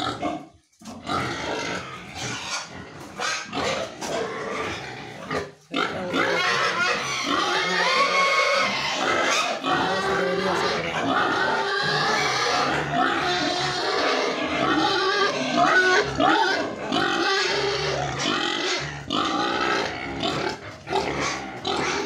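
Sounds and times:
pigs squealing and grunting: 0:00.0 - 0:22.0.

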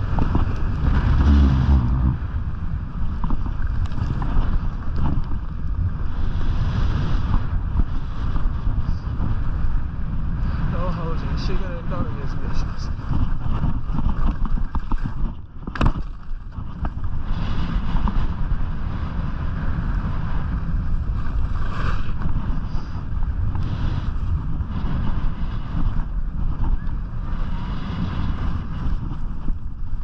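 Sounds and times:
wind buffeting microphone: 0:00.0 - 0:30.0
skis scraping on snow: 0:16.0 - 0:30.0.

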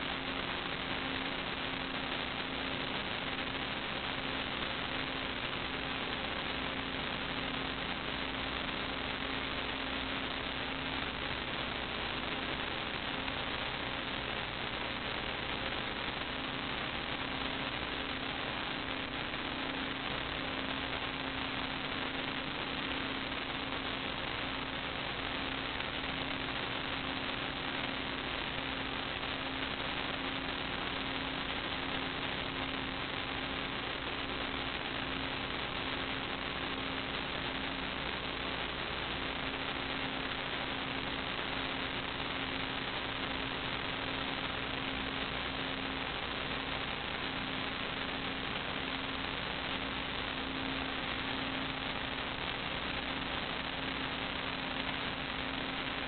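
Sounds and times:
electrical hiss: 0:00.0 - 0:56.0.

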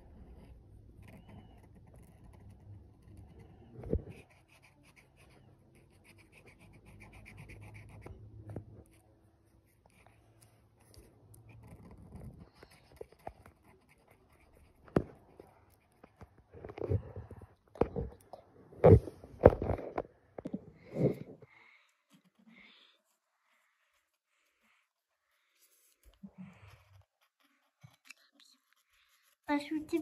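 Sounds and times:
marker scratching on paper: 0:00.0 - 0:16.9.

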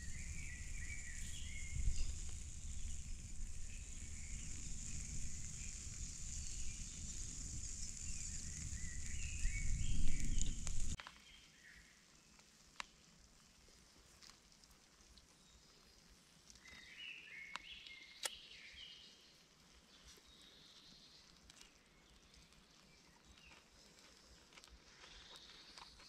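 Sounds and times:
low rumble and hiss: 0:00.0 - 0:11.0
small birds chirping: 0:00.0 - 0:13.0, 0:15.2 - 0:26.0.

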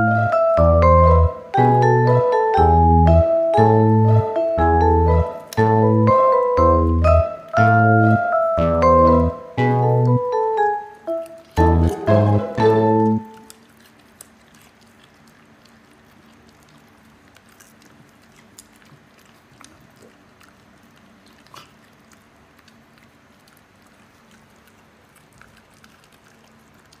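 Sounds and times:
low steady hum: 0:00.0 - 0:27.0
dogs licking tiled floor: 0:10.6 - 0:27.0.

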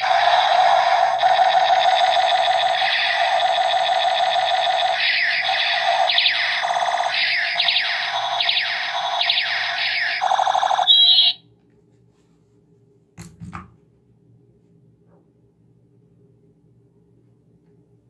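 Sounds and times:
toy gun siren-like warble: 0:00.0 - 0:11.4
plastic toy knocking on table: 0:13.2 - 0:13.8.

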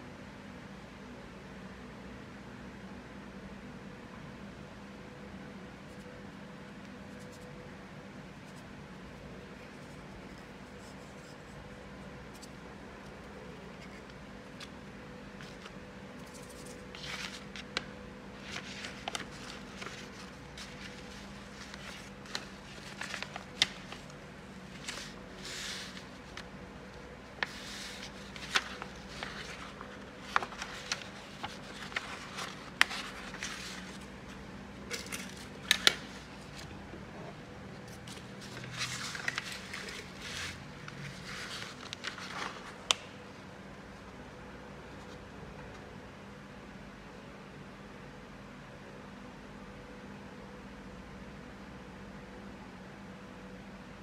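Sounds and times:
faint steady hum: 0:00.0 - 0:54.0
paper rustling and crinkling: 0:15.4 - 0:36.8, 0:37.8 - 0:43.1.

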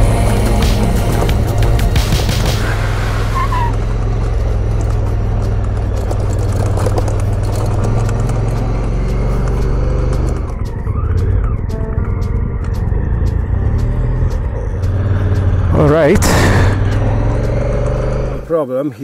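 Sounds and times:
motorcycle engine running: 0:00.0 - 0:18.5
tyres rattling on gravel: 0:03.4 - 0:11.4.

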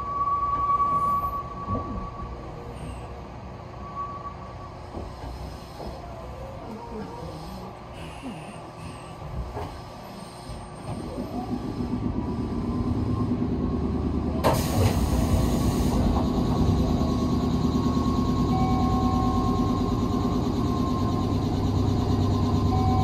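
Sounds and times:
train machinery hum: 0:00.0 - 0:23.0.

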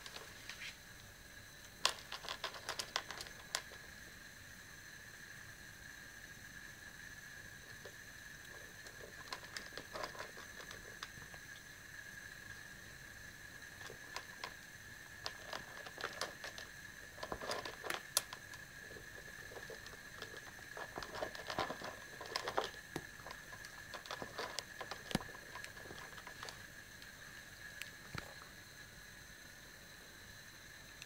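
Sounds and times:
faint high whine: 0:00.0 - 0:31.0
cats crunching dry kibble: 0:01.8 - 0:03.9, 0:07.8 - 0:11.6, 0:13.6 - 0:27.1.

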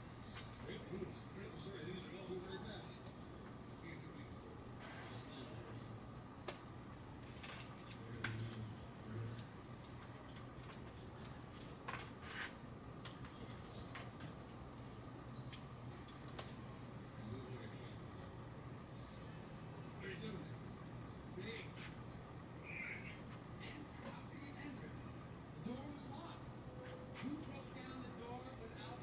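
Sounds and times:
crickets chirping: 0:00.0 - 0:29.0.

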